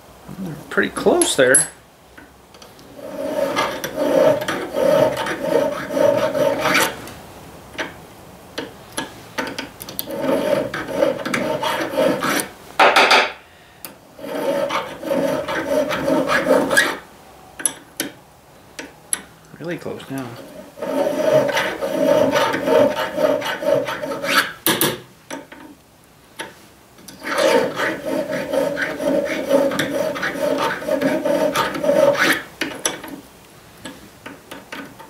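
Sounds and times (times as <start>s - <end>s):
hand file rasping on metal: 2.9s - 7.0s, 9.5s - 12.5s, 14.2s - 17.0s, 20.4s - 24.6s, 27.1s - 33.1s.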